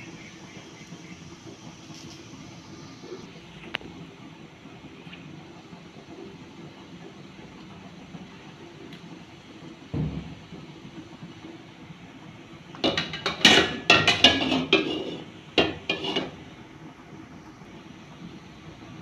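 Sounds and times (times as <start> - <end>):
dull thump: 9.9 - 10.4
metal kitchenware clanking: 12.8 - 16.4.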